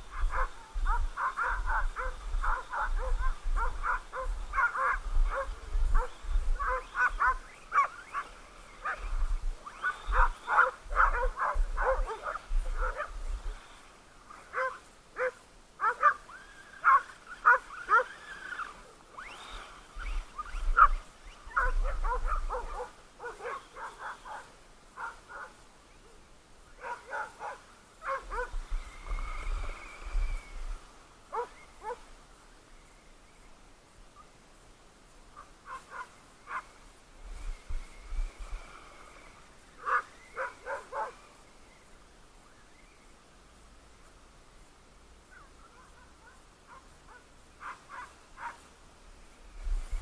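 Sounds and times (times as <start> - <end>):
dogs barking excitedly: 0.1 - 9.1, 9.7 - 13.2, 14.4 - 18.7, 20.8 - 25.6, 26.8 - 28.5, 31.3 - 32.0, 35.4 - 36.7, 39.8 - 41.2, 45.8 - 48.6.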